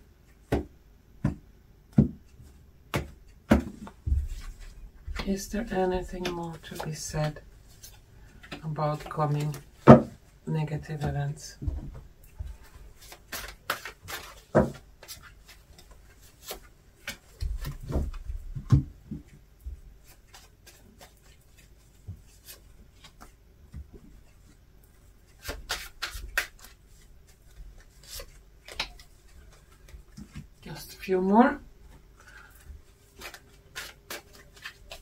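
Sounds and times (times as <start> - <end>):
cards being shuffled: 2.4 - 10.0, 13.0 - 18.2, 20.0 - 23.4, 25.2 - 30.5, 32.2 - 35.0.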